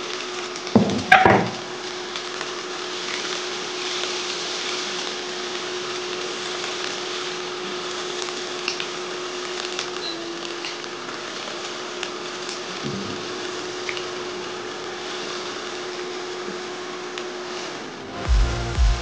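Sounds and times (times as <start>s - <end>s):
onions sizzling in a pan: 0.0s - 18.1s
steady hum: 17.5s - 19.0s.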